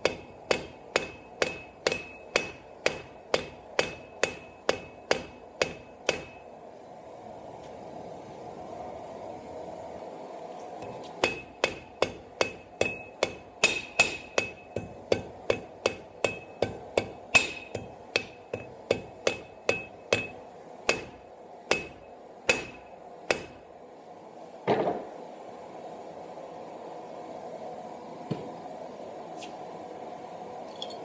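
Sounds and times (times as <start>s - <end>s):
hammer striking steel on anvil: 0.0s - 6.5s, 10.8s - 23.6s.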